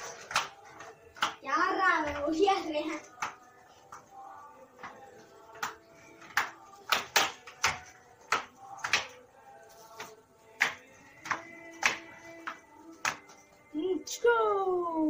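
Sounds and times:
roller skates knocking on concrete: 3.0 - 4.1, 4.8 - 9.2, 10.0 - 13.4.

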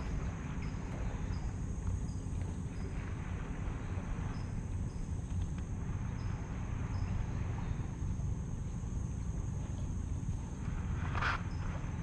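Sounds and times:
insects trilling: 0.0 - 12.0
low steady rumble: 0.0 - 12.0.

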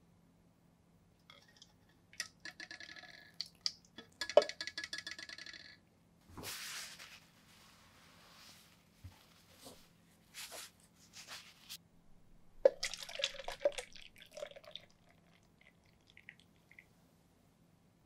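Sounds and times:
liquid dripping: 1.2 - 5.3, 12.6 - 16.9
liquid pouring through strainer: 12.6 - 16.8.

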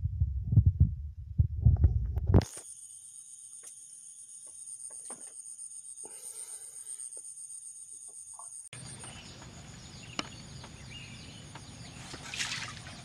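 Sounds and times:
birds chirping: 7.8 - 13.0.

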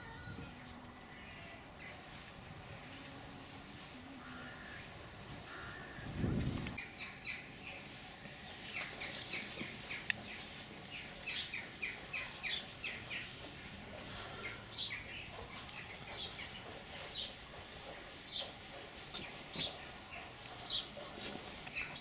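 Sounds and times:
small birds chirping: 6.8 - 22.0.

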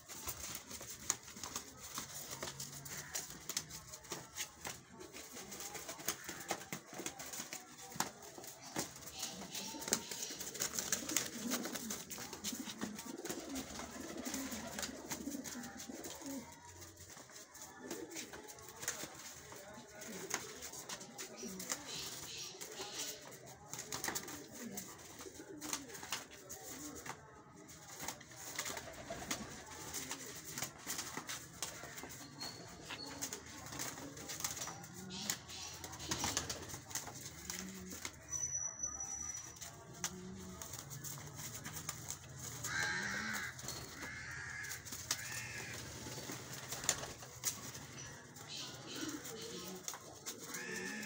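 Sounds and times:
pigeon fluttering on concrete: 0.0 - 51.0
pigeons cooing: 0.1 - 27.1, 40.0 - 51.0.

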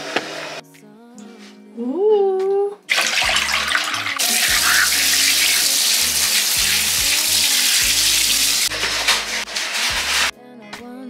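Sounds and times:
background music: 0.1 - 11.0
water splashing into bathtub: 2.9 - 8.7
shower spraying: 2.9 - 10.3.

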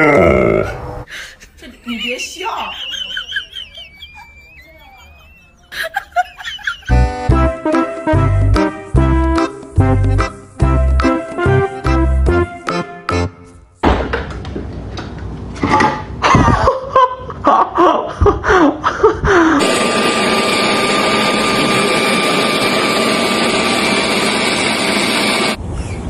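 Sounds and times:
leaf blower blowing: 19.6 - 25.6.

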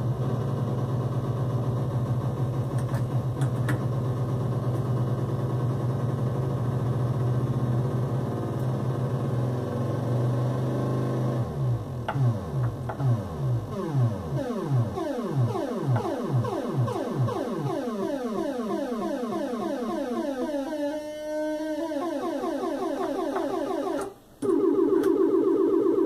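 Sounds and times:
dense buzzing synth tone: 11.2 - 24.0
sweeping synthesizer tone: 11.4 - 26.0.

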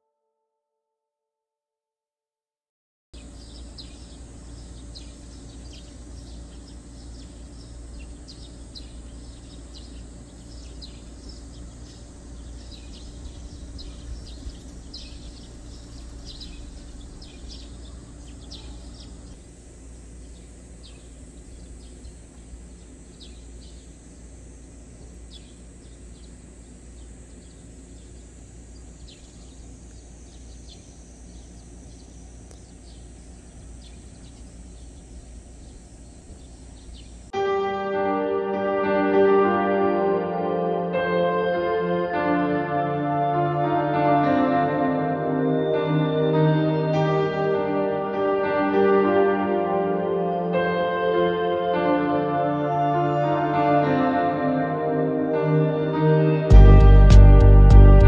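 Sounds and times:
high chirps of birds or insects: 3.2 - 37.4
low rumble: 11.7 - 19.4, 56.5 - 58.0.

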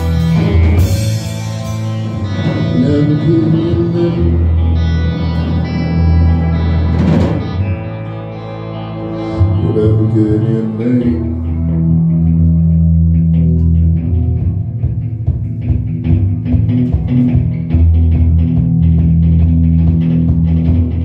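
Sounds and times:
drum kit: 0.0 - 7.9, 12.4 - 21.0
electric bass: 0.0 - 21.0
electric guitar: 0.0 - 21.0.

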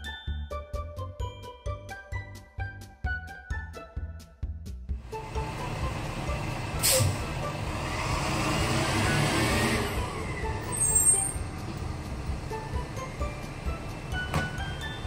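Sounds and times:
heavy vehicle engine rumbling: 5.0 - 15.0.

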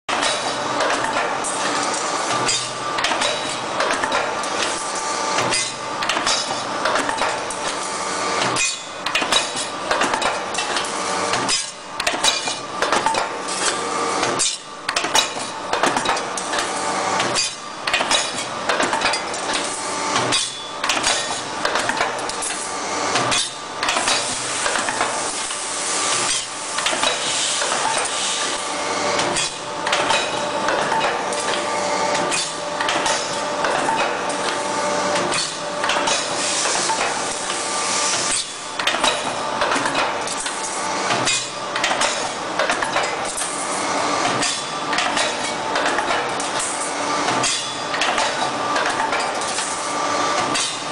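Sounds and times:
wire-forming machine clanking: 0.1 - 4.8, 8.4 - 25.6, 29.2 - 34.6, 35.2 - 43.6.

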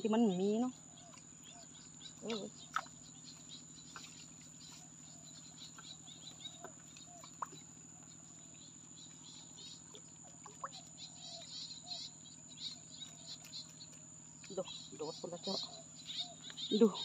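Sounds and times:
bird chirps: 0.0 - 17.0
faint ticks: 12.6 - 14.9, 16.0 - 16.7.

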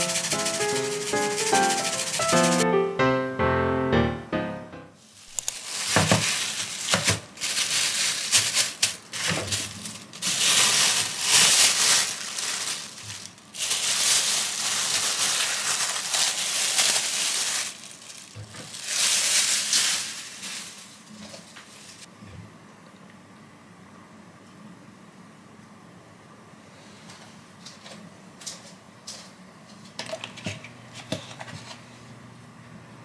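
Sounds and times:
plastic bag crinkling: 0.0 - 2.6, 5.1 - 22.1.

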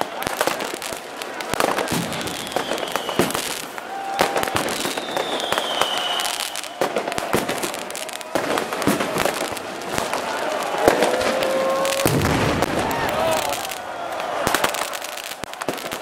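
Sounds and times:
fireworks bangs and pops: 0.0 - 16.0
firework whistle sliding down: 2.0 - 7.9.

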